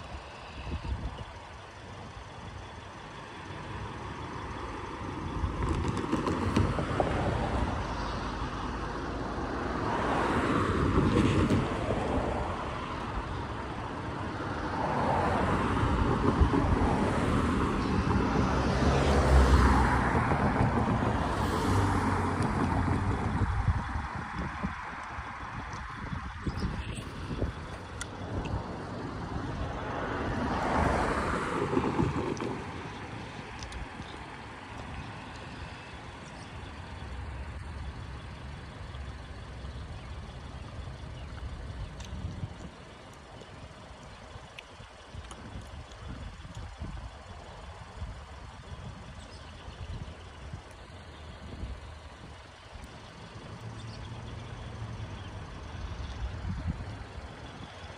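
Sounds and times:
passenger train rumbling: 0.0 - 9.2, 9.8 - 24.8, 26.0 - 39.4.

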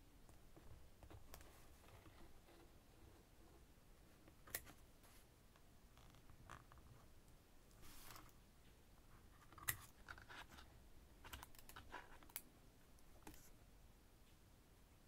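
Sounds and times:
soft cardboard rustle: 0.5 - 5.4, 7.8 - 8.4.

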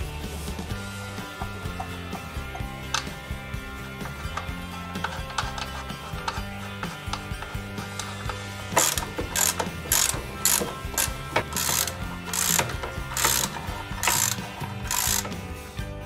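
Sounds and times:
ratchet wrench clicking: 4.0 - 15.4.

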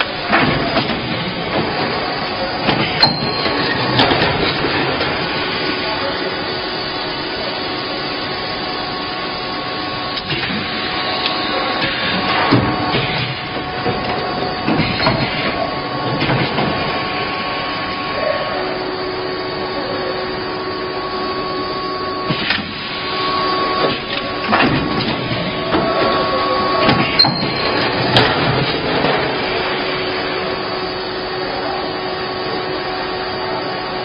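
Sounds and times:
blow molding machine hum: 0.0 - 34.0
sharp machine clunks: 26.8 - 28.7.

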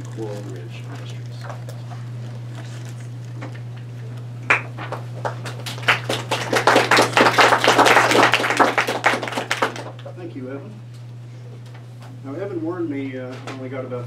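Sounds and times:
audience applauding: 4.5 - 10.1.

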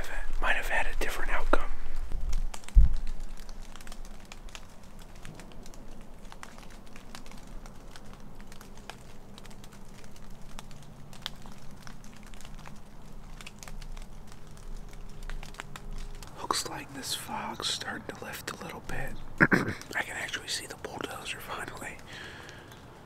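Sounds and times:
low steady hum: 0.0 - 23.0
soft clicks and crackles: 0.0 - 23.0.

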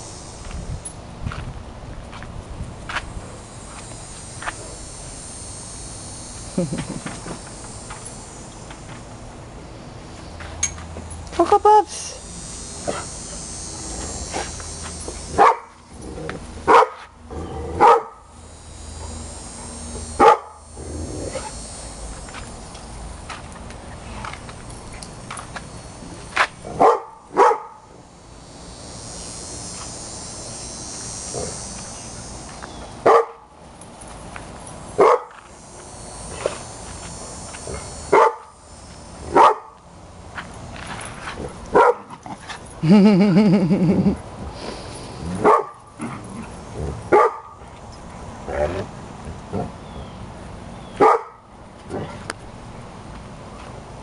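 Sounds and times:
small dogs barking: 15.4 - 15.8, 16.6 - 17.1, 17.8 - 18.2, 20.2 - 20.7, 26.7 - 27.9, 33.0 - 33.5, 35.0 - 35.4, 38.1 - 38.5, 39.3 - 39.8, 41.7 - 42.2, 45.4 - 45.9, 47.1 - 47.6, 51.0 - 51.4.

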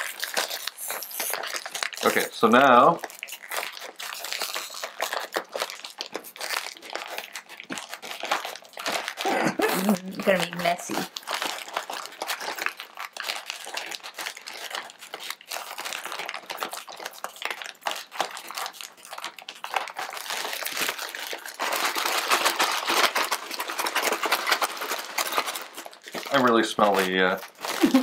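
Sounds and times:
dry noodles crunching: 0.0 - 28.0
plastic wrapper crinkling: 0.0 - 28.0.

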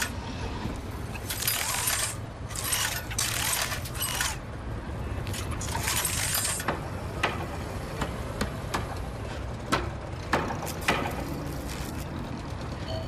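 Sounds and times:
low machinery hum: 0.0 - 13.0
sharp mechanical clicks: 1.1 - 4.5, 5.2 - 7.4.

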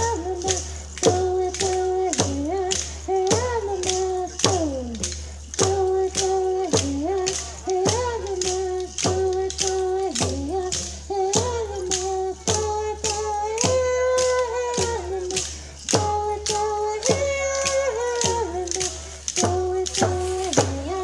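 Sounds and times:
sharp percussive beat: 0.0 - 21.0
voices singing held notes: 0.0 - 21.0.

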